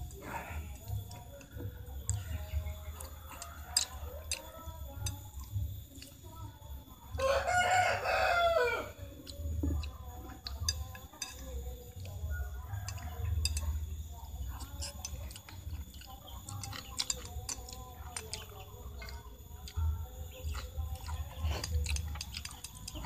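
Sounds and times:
chopsticks clicking on plate: 0.9s - 6.2s, 9.2s - 12.2s, 12.9s - 13.8s, 14.6s - 23.0s
rooster crowing: 2.1s - 5.2s, 7.1s - 9.4s, 12.0s - 13.7s
chicken clucking: 7.2s - 23.0s.

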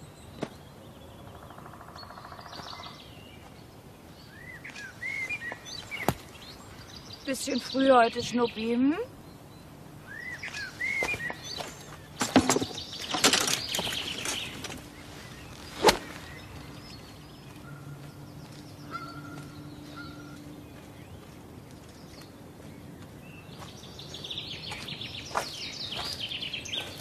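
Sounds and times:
birds chirping: 0.0s - 27.0s
low steady hum: 0.0s - 27.0s
rustling: 10.6s - 17.2s
sharp crack: 15.7s - 16.2s.

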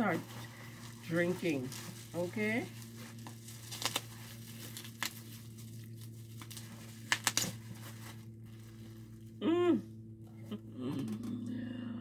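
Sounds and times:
bubble wrap crinkling and clicking: 1.0s - 9.3s
person humming: 9.4s - 12.0s.

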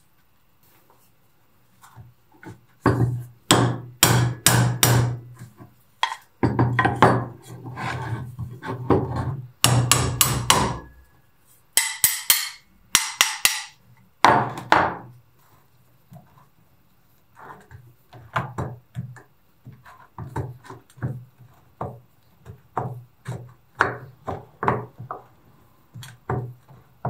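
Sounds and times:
hammer striking metal plate: 11.8s - 13.8s.

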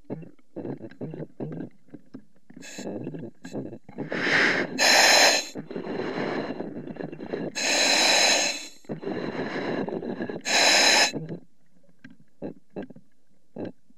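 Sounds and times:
diver breathing hiss: 4.1s - 6.6s, 7.5s - 9.8s, 10.4s - 11.2s.

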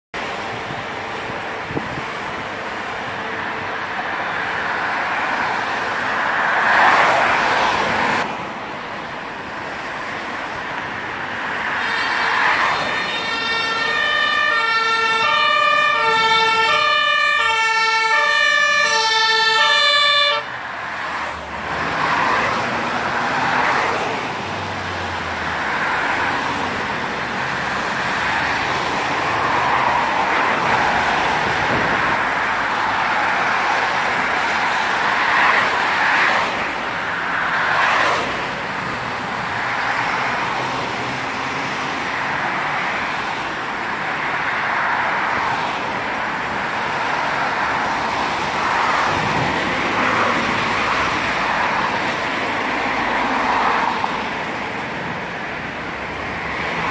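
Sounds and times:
road traffic: 0.1s - 56.9s
vehicles passing close by: 0.2s - 56.9s
two-tone fire engine sirens: 11.6s - 21.2s.

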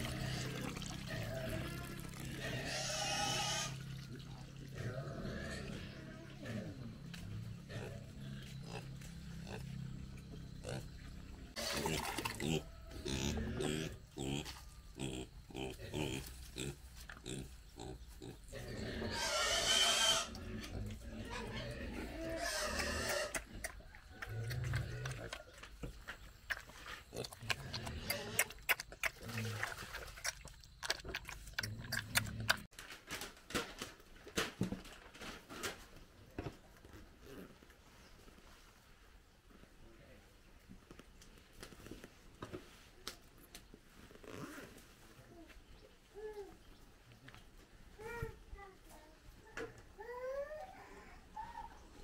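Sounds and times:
pig slurping from metal bowl: 0.0s - 4.9s, 11.6s - 13.8s, 26.4s - 32.7s
pig grunting and squealing: 0.0s - 32.7s.

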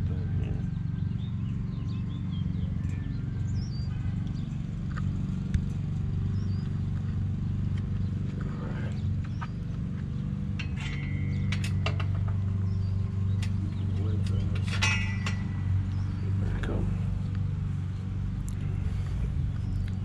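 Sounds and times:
low machine hum: 0.0s - 20.0s
bird chirps: 0.1s - 20.0s
chain-link fence clinking: 8.7s - 18.2s.

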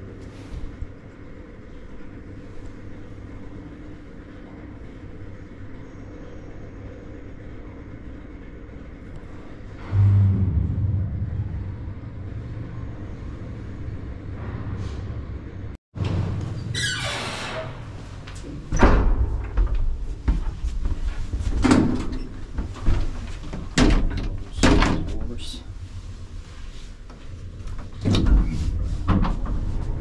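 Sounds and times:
lift machinery hum: 6.6s - 15.8s
lift doors knocking and banging: 21.3s - 25.4s.

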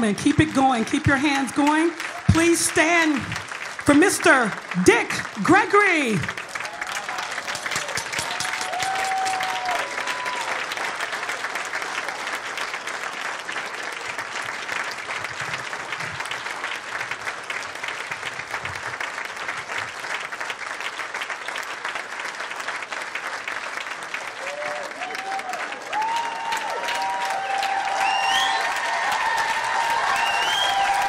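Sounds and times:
audience cheering: 0.0s - 14.8s, 24.1s - 31.0s
audience applauding: 0.0s - 31.0s.

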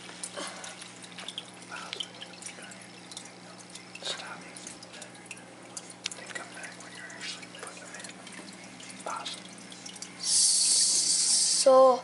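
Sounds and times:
small water splashes: 0.0s - 10.6s
aquarium filter hum: 0.0s - 12.0s
water trickling and dripping: 0.0s - 12.0s.

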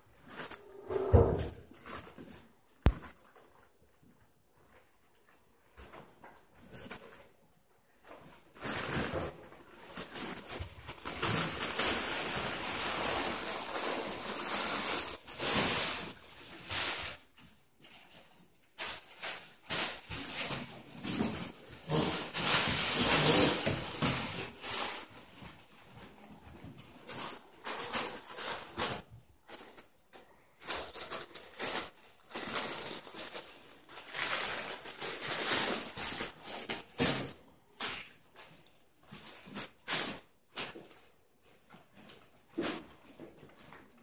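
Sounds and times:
fabric tunnel rustling and crinkling: 7.9s - 17.4s.

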